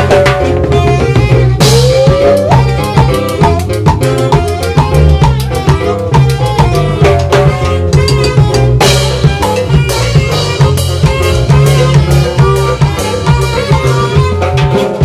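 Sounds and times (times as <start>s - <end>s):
accordion: 0.0s - 15.0s
bass: 0.0s - 15.0s
drums with cymbals: 0.0s - 15.0s
guitar: 0.0s - 15.0s
saxophone lead: 0.0s - 15.0s.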